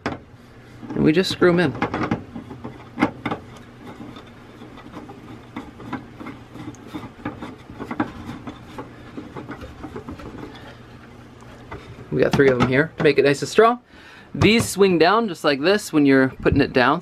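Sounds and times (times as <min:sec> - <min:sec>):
wood and metal rubbing with clicks: 0:00.8 - 0:13.2.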